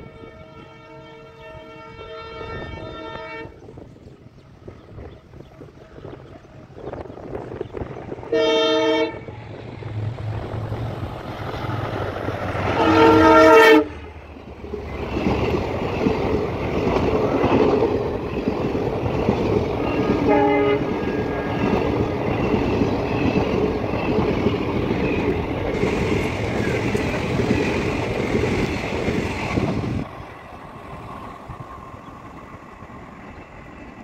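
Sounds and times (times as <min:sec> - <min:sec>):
train horn blasts: 0:00.0 - 0:03.6, 0:08.2 - 0:09.4, 0:12.6 - 0:14.2, 0:19.8 - 0:21.9
train rumble and wheel clatter: 0:00.0 - 0:34.0.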